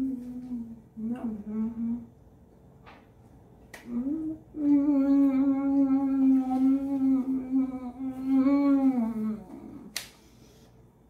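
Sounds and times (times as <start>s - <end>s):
woman humming mmm: 0.0s - 2.1s, 3.8s - 10.0s.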